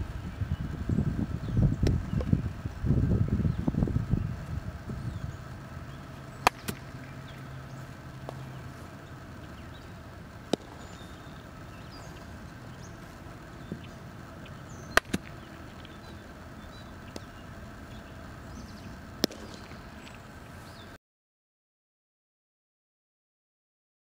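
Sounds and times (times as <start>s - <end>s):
outdoor background noise: 0.0s - 21.0s
bat cracking baseball: 5.5s - 9.5s, 10.2s - 17.4s, 19.0s - 20.3s.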